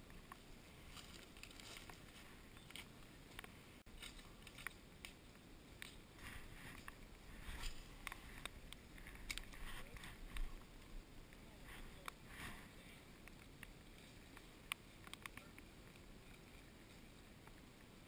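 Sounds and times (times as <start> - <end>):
faint clicks and taps: 13.2 - 17.9.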